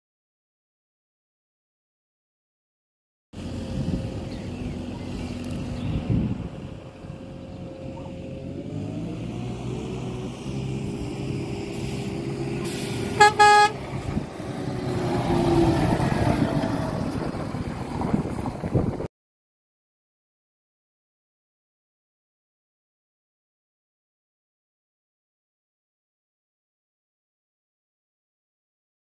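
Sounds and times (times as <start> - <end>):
truck diesel engine: 3.4 - 19.1
air horn blasts: 13.1 - 13.8.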